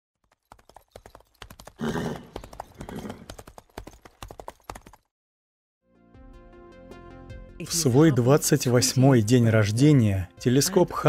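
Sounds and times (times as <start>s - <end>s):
horse hooves clip-clopping: 0.2s - 5.1s
horse whinny: 1.8s - 3.3s.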